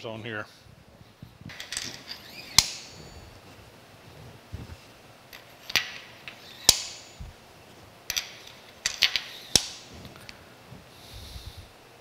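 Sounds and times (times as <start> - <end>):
metal spacers clinking: 1.5 - 3.5, 5.3 - 7.2, 8.0 - 10.4.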